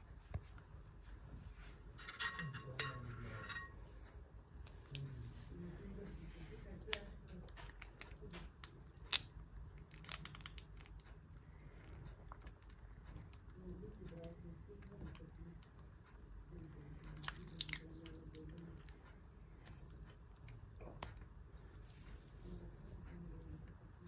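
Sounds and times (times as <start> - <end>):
knife squishing through honeycomb: 16.5 - 21.1.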